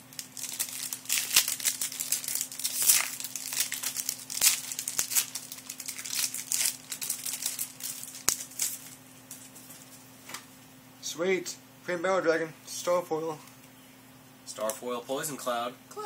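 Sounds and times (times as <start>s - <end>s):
foil wrappers crinkling: 0.0s - 10.0s.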